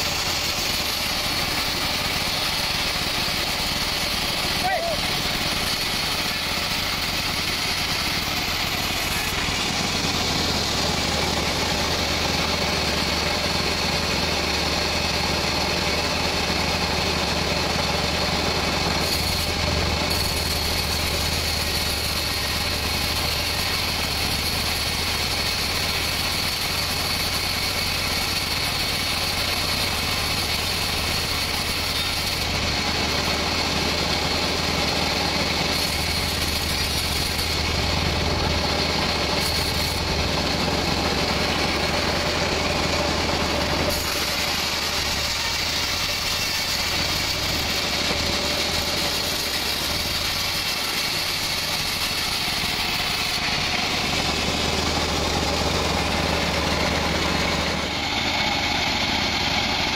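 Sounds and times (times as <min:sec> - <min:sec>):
band saw low hum: 0:00.0 - 0:15.7
saw blade whine: 0:00.0 - 0:59.9.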